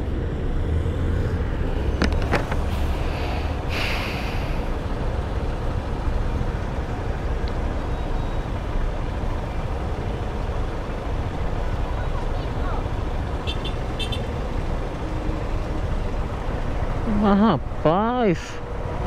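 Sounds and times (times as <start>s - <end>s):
stopped traffic: 0.0s - 19.0s
brief hiss: 2.8s - 4.6s.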